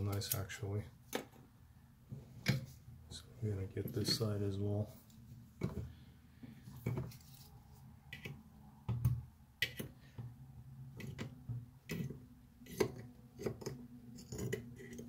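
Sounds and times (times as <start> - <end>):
pliers clicking and scraping metal: 0.0 - 0.6, 11.9 - 15.0.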